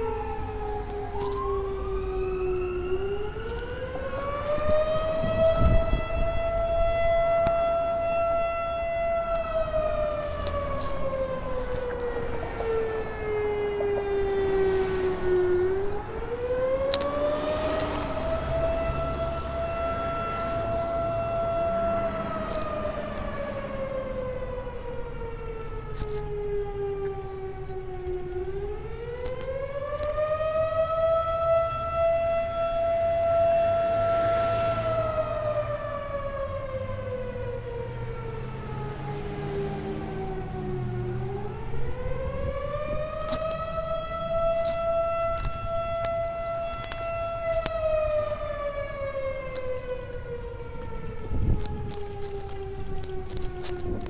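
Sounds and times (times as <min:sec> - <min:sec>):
siren wailing: 0:00.0 - 0:54.0.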